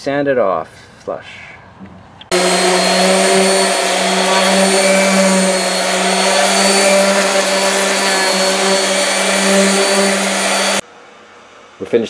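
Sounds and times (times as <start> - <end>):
orbital sander motor hum: 2.3 - 10.8.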